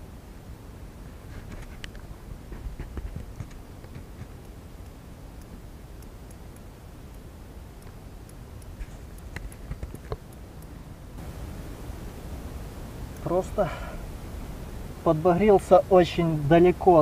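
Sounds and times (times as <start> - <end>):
low steady rumble: 0.0 - 17.0
fishing tackle clicks and ticks: 2.9 - 10.7.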